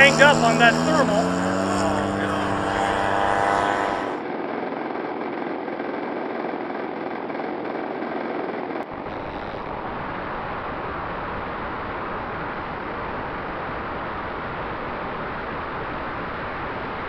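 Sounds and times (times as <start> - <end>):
propeller wash over microphone: 0.0 - 4.2
model airplane engines droning: 0.0 - 4.3
small gas engine running: 0.0 - 4.3.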